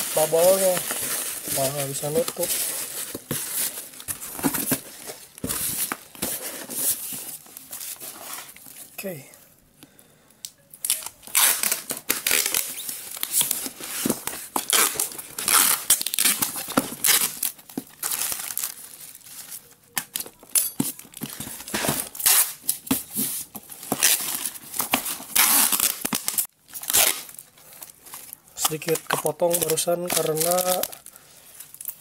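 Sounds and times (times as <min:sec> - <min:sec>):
packing tape ripping: 0:10.8 - 0:18.8, 0:21.2 - 0:22.9, 0:23.8 - 0:27.5, 0:28.6 - 0:31.0.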